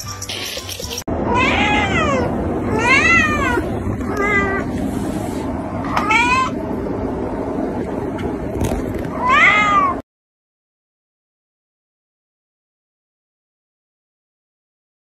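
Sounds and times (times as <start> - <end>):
kitten meowing: 1.3 - 4.7, 5.9 - 6.6, 9.1 - 10.0.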